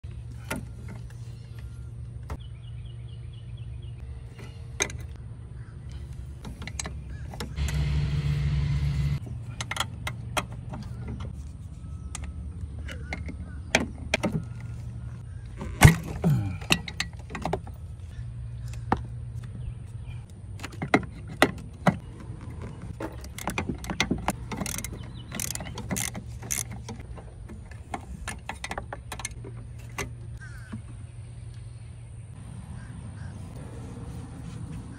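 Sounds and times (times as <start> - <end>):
ratchet wrench clicking on metal: 24.4 - 26.9.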